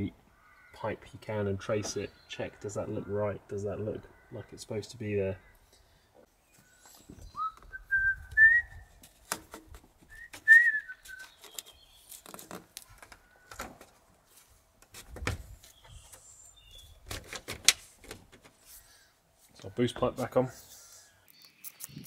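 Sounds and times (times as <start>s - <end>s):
person whistling rising phrases: 7.3s - 8.9s, 10.1s - 11.3s.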